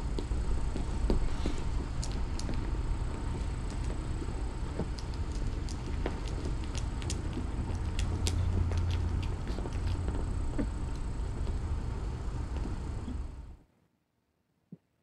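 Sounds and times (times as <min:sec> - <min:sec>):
kittens suckling clicks: 0:00.0 - 0:11.6
cat purring: 0:00.0 - 0:13.5.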